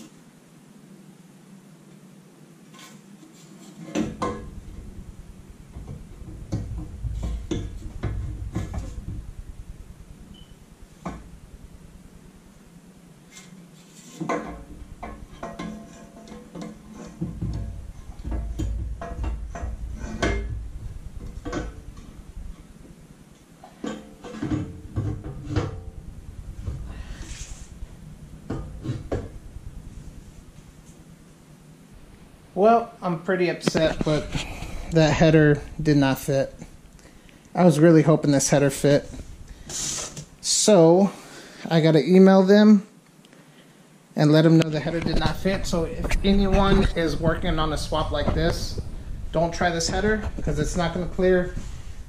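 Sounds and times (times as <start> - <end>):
low rumble of handling: 2.9 - 41.0, 44.4 - 52.0
metal exhaust pipe knocking: 4.0 - 11.4, 14.3 - 22.6, 23.6 - 30.6
short hiss: 38.8 - 41.8.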